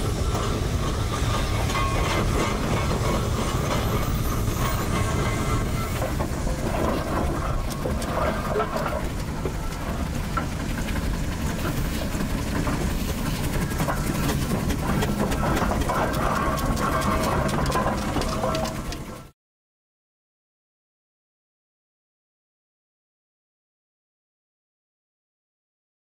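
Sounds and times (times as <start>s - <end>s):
steam roller rumbling: 0.0s - 19.3s.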